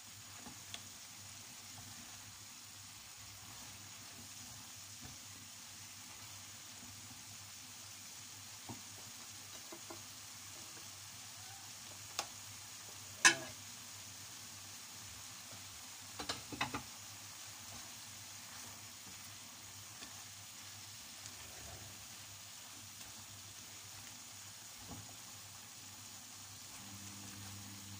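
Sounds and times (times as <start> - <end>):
food sizzling in a frying pan: 0.0 - 27.9
spatula knocking against pan: 13.2 - 13.5.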